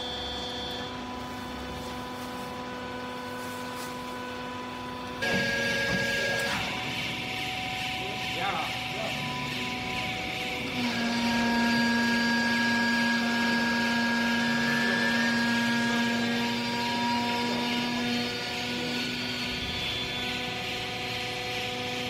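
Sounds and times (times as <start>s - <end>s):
hydraulic motor and pump whine: 0.0s - 22.0s.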